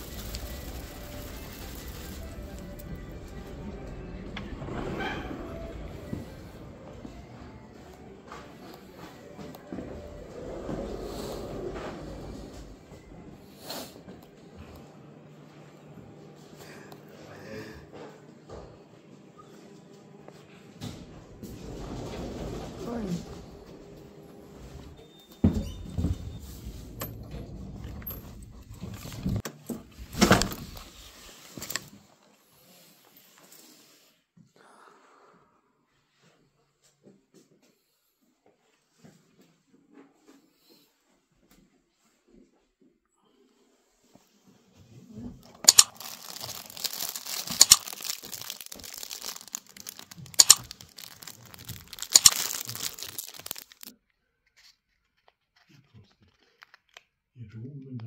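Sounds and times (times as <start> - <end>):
plastic wrapper crinkling: 0.0 - 2.9, 45.6 - 54.0.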